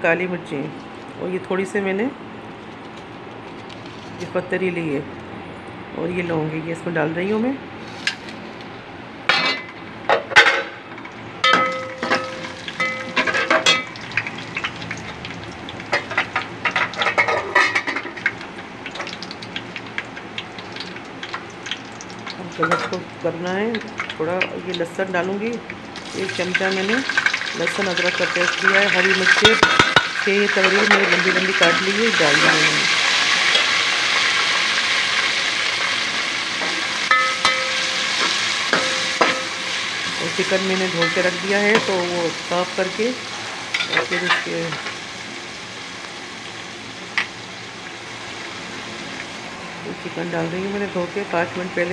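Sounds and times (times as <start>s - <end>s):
spices sizzling in hot oil: 10.8s - 51.9s
metal spoon clinking on pot: 37.1s - 38.0s, 38.7s - 39.6s.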